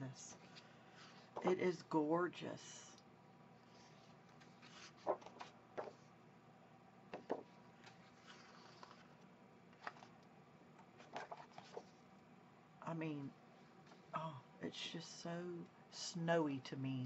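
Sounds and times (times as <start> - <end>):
faint room hum: 0.0 - 17.0
paper sheets rustling and tapping: 4.3 - 6.0, 7.1 - 9.2, 11.0 - 11.9.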